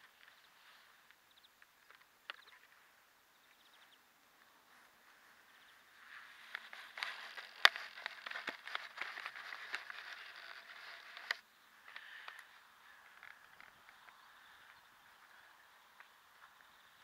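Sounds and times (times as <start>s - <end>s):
camera handling rustling: 6.2s - 12.5s.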